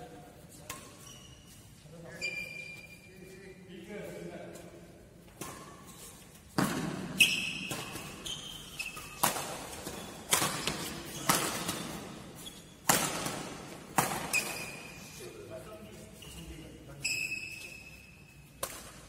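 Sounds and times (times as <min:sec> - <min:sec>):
court shoes squeaking: 0:00.0 - 0:19.0
badminton racket hitting shuttlecock: 0:05.3 - 0:15.0, 0:18.5 - 0:19.0.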